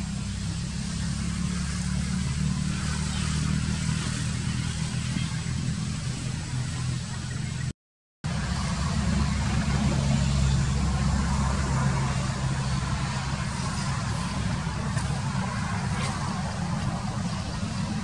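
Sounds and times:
motor engine humming: 0.0s - 7.7s, 8.3s - 18.0s.

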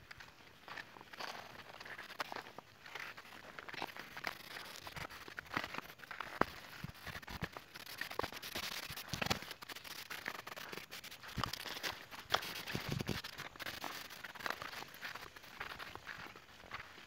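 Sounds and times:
footsteps through grass and undergrowth: 0.0s - 17.0s.

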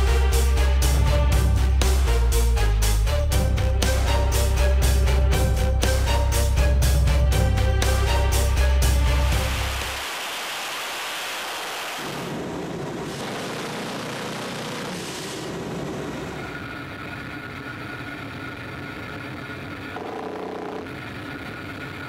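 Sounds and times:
aircraft engine and wind rushing: 11.0s - 20.0s.

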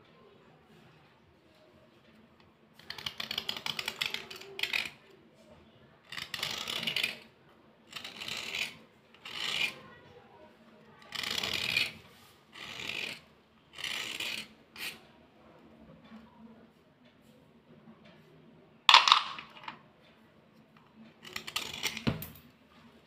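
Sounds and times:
metal file rasping on slate pencil: 2.8s - 5.0s, 6.1s - 7.3s, 7.9s - 9.9s, 11.0s - 15.0s, 21.2s - 22.1s.

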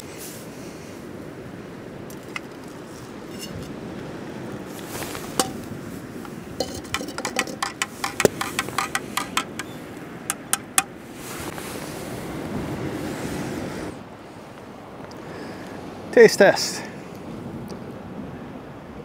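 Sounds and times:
waves: 0.0s - 19.0s
wind: 0.0s - 19.0s
metal spoon clinking in cup: 3.3s - 3.7s, 5.4s - 5.6s, 6.6s - 10.9s
spoon tapping: 5.3s - 5.7s, 6.6s - 11.0s.

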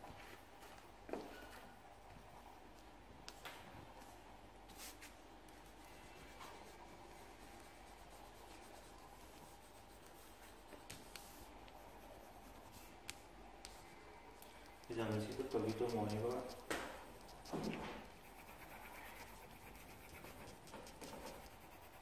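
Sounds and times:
pencil scratching on paper: 14.8s - 22.0s.

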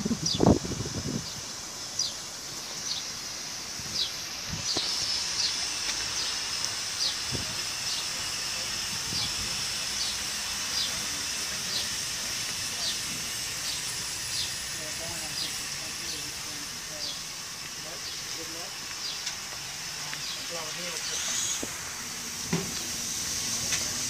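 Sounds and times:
steam locomotive hissing: 0.0s - 24.0s
bird chirping: 0.2s - 3.2s, 3.9s - 7.2s, 13.6s - 16.4s, 17.9s - 19.4s, 20.1s - 21.7s.

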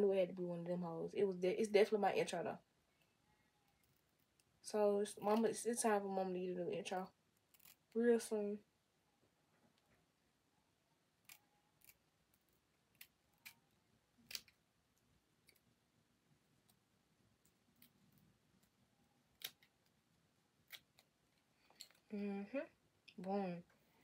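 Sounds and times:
scissors snipping: 19.3s - 19.7s.

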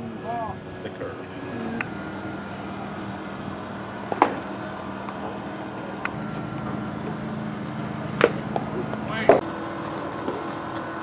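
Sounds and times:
steady engine-like hum: 0.0s - 11.0s.

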